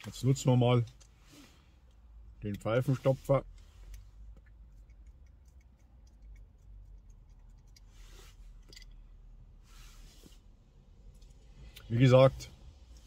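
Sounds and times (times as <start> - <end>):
pipe tamper clicks and scratches: 3.5 - 7.9.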